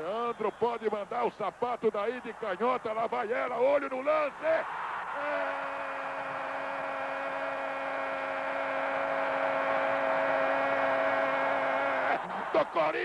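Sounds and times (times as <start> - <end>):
commentator long held shout: 5.2 - 13.0.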